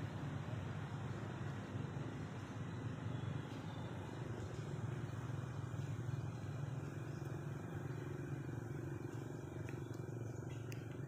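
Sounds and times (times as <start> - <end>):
low rumble with faint hum: 0.0 - 11.0.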